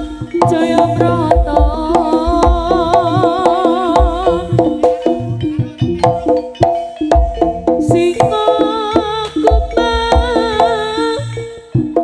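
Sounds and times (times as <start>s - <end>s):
held pitched tones: 0.0s - 12.0s
struck percussion: 0.0s - 12.0s
wavering vibrato melody: 0.0s - 12.0s.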